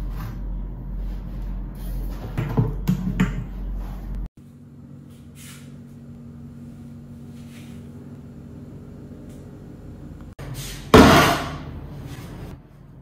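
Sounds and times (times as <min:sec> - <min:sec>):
low steady hum: 0:00.0 - 0:10.4.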